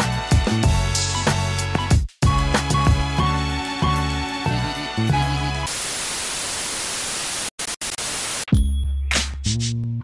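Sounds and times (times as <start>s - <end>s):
intro music with bass and drums: 0.0s - 5.6s
static hiss: 5.7s - 8.5s.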